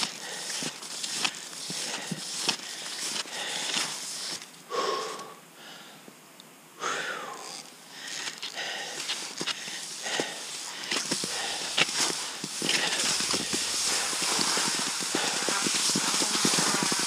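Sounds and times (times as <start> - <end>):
ski strides swishing on snow: 0.0 - 4.6, 7.9 - 17.0
wheezy breaths: 0.0 - 6.1, 6.8 - 17.0.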